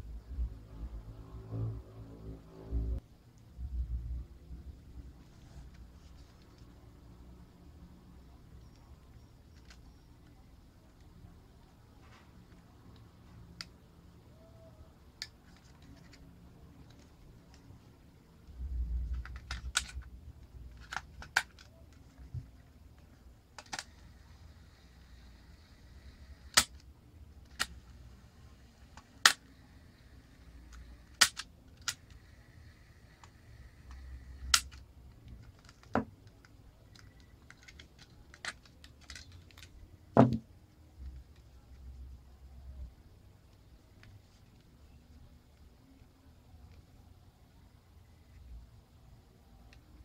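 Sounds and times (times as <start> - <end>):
batteries and plastic casing clicking: 8.6 - 11.2, 18.6 - 24.8, 30.6 - 40.4.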